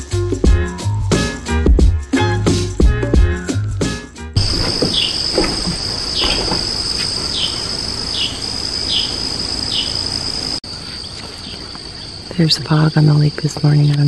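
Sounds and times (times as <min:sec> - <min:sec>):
insect drone: 0:04.4 - 0:14.0.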